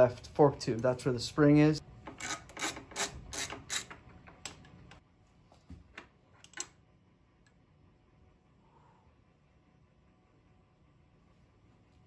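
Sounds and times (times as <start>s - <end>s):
ratchet wrench clicking: 2.2s - 3.9s.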